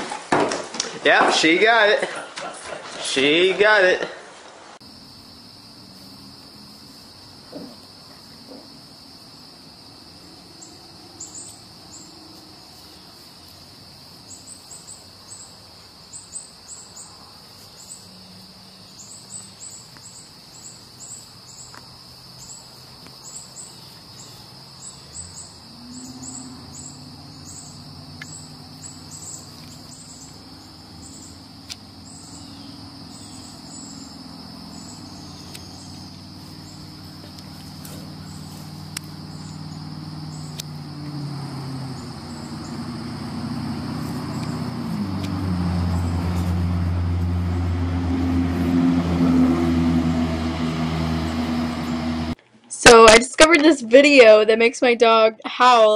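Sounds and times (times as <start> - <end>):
quick insect chirps: 4.8 - 47.6
high-pitched insect drone: 4.9 - 52.3.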